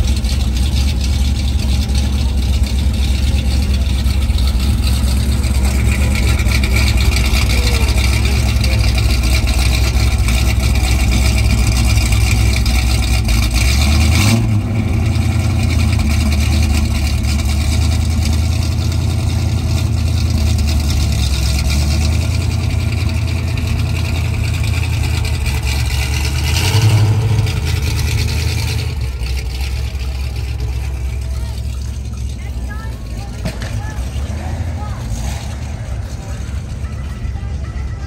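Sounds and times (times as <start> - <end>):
car engine idling and revving: 0.0 - 38.0.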